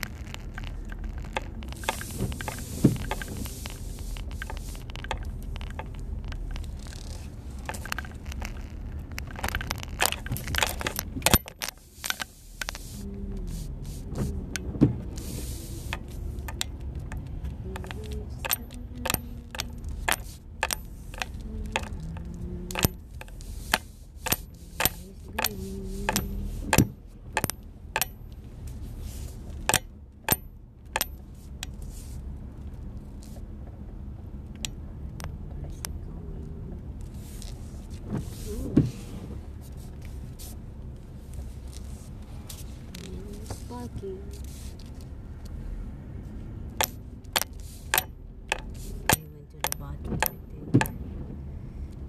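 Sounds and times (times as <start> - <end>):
windshield wiper squeaking: 0.0 - 27.4, 37.2 - 40.6, 46.8 - 51.3
low steady rumble: 0.0 - 52.0.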